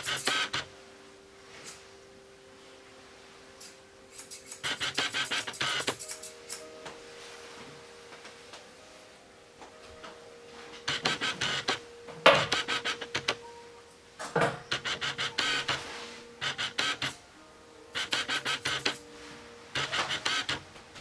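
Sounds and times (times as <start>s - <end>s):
scissors snipping dog fur: 3.6s - 6.7s.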